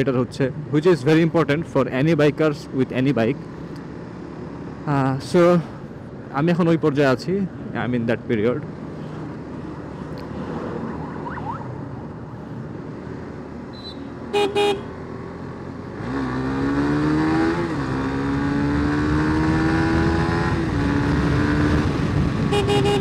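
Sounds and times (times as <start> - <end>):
wind and road noise: 0.0 - 23.0
horn blasts: 13.8 - 14.9, 22.5 - 23.0
motorcycle engine accelerating: 14.6 - 23.0.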